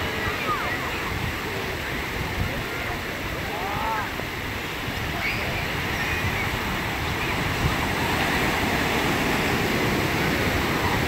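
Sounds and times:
small waves breaking on shore: 0:00.0 - 0:11.0
wind rumbling on microphone: 0:00.0 - 0:11.0.

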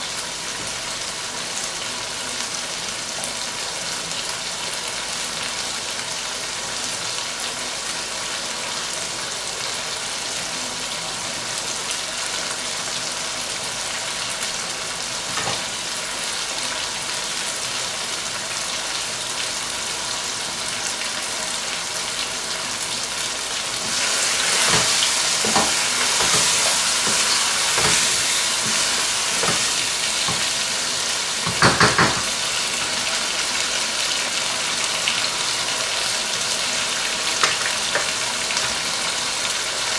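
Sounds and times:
food sizzling in a wok: 0:00.0 - 0:39.9
utensil scraping a pan: 0:23.8 - 0:30.6
utensil knocking against pan: 0:31.4 - 0:32.3.

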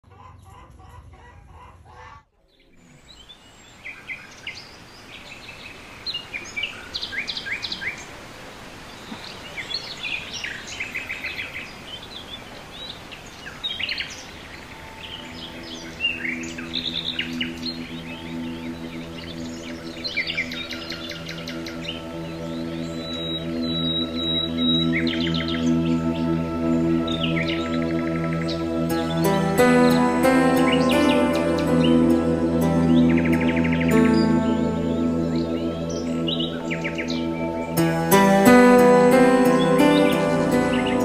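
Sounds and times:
small birds chirping: 0:02.4 - 0:41.0
soft held musical tones: 0:14.3 - 0:41.0.

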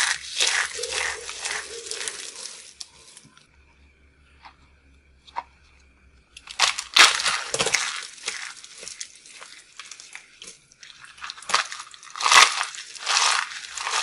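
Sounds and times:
dry soap crunching: 0:00.0 - 0:03.4, 0:06.4 - 0:14.0.

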